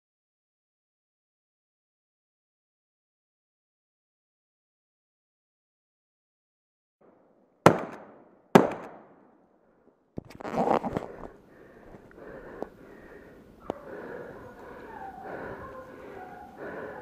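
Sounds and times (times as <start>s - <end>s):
gunshots echoing: 7.6s - 9.3s.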